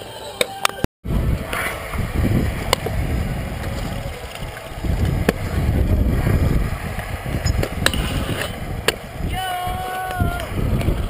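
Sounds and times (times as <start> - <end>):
wind buffeting microphone: 1.0 - 11.0
hard wheels rolling over concrete: 1.1 - 9.3.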